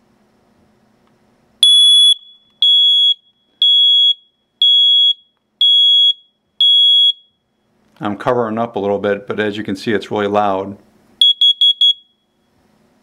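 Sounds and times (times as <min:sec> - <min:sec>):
loud high-pitched alarm beeps: 0:01.6 - 0:07.7, 0:11.2 - 0:12.5.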